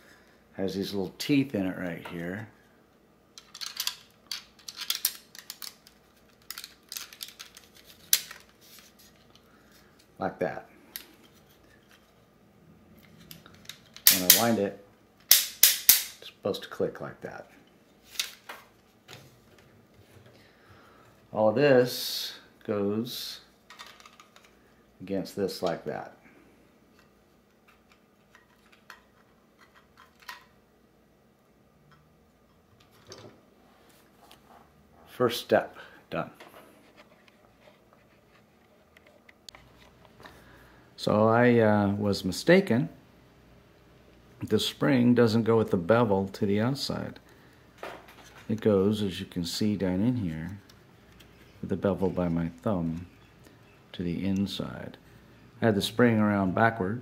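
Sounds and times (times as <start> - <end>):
plastic parts clicking and knocking: 3.4 - 8.6, 23.7 - 24.6, 27.6 - 30.6.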